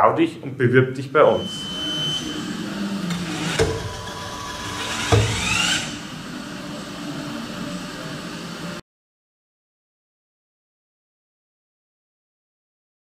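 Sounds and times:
rising machine whine: 1.3s - 8.8s
steady mechanical machine noise: 1.4s - 8.8s
machine knocks: 3.1s - 6.0s.

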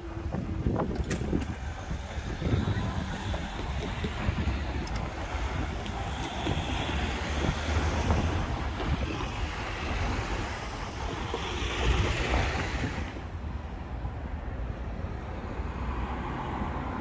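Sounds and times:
wind buffeting microphone: 0.0s - 15.4s
road traffic passing: 0.0s - 17.0s.

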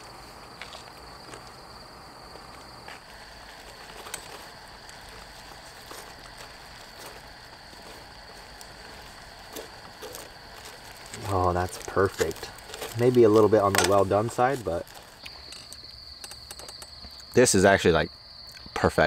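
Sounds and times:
steady hiss: 0.0s - 19.0s
plastic cutlery clicking on foil: 3.6s - 16.9s.

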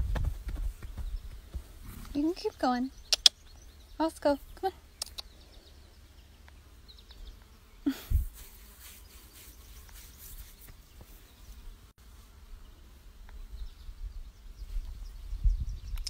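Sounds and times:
microphone handling rumble: 0.0s - 2.3s
wind rumble: 0.0s - 2.4s, 14.0s - 16.0s.

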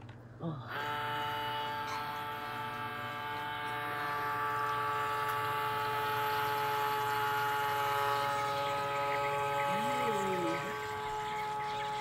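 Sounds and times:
electric motor pump humming: 0.0s - 12.0s.

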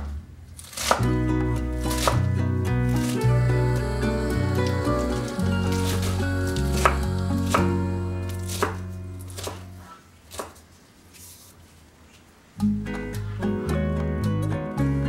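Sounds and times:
knife chopping on wooden board: 0.7s - 1.1s, 1.9s - 2.3s, 8.5s - 9.7s, 10.3s - 10.6s
background music: 0.9s - 9.8s, 12.6s - 15.0s.

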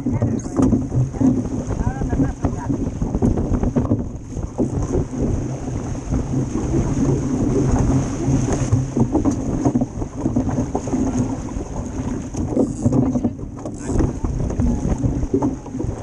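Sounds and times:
water rushing along hull: 0.0s - 16.0s
wind buffeting microphone: 0.0s - 16.0s.

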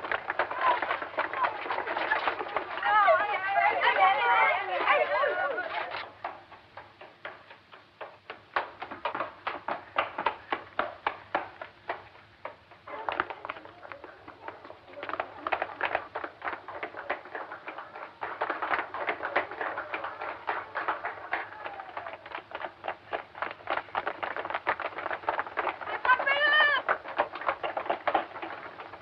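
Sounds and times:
footsteps running on stone: 0.0s - 29.0s.

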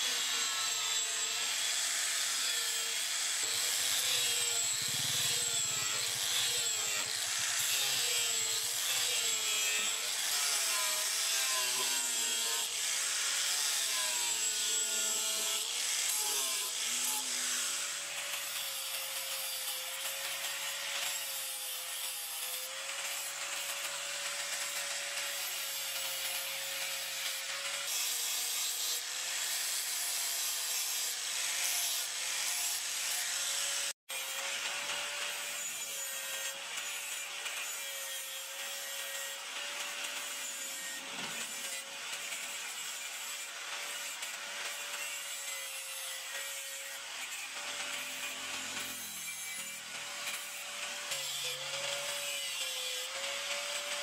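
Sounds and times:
angle grinder motor whine: 0.1s - 10.4s
disc grinding steel: 3.4s - 8.8s.

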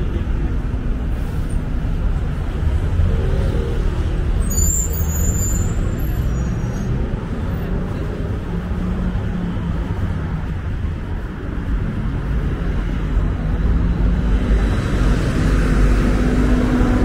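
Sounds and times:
bus engine rumbling: 0.0s - 17.0s
street traffic: 0.0s - 17.0s
brake squeal and hiss: 4.4s - 7.0s.

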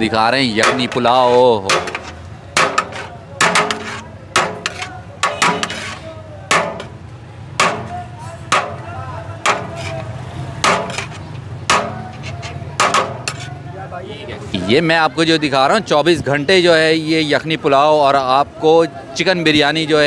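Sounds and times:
sharp knocks: 0.6s - 7.0s, 7.6s - 10.0s, 10.6s - 12.2s, 12.8s - 13.4s.

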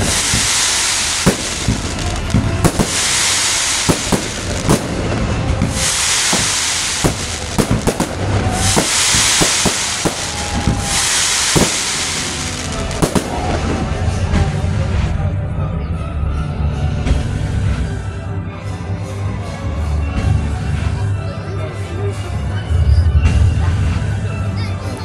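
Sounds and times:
fireworks fountains hissing: 0.0s - 15.0s
fireworks bangs and crackles: 0.0s - 15.2s.

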